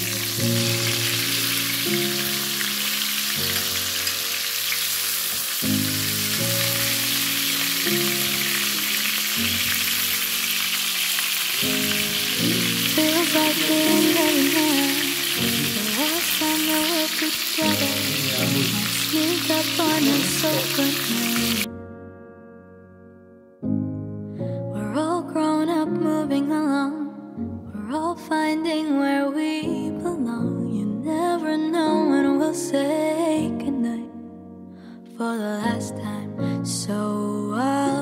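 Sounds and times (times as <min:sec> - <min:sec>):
pork sizzling in a frying pan: 0:00.0 - 0:21.7
background music: 0:00.0 - 0:38.0.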